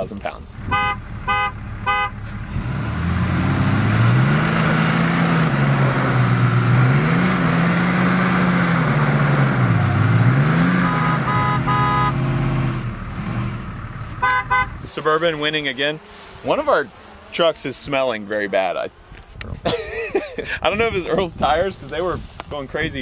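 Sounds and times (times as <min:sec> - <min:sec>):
car horn honks: 0:00.6 - 0:02.3, 0:10.3 - 0:12.7, 0:14.1 - 0:14.9
truck engines revving hard: 0:00.6 - 0:18.7.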